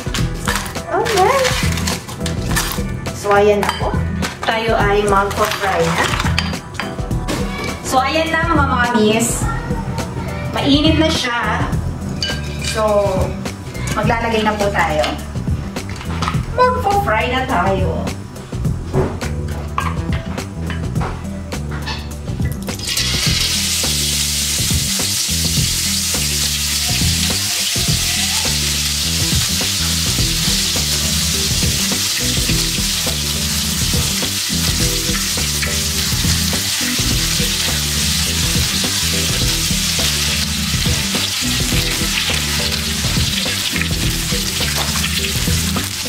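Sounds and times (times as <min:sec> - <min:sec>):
batter sizzling in hot oil: 0:22.7 - 0:46.0.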